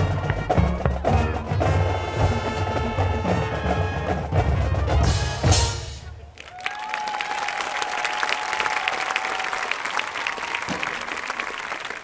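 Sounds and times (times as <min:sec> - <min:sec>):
crowd applauding: 0:06.3 - 0:12.0.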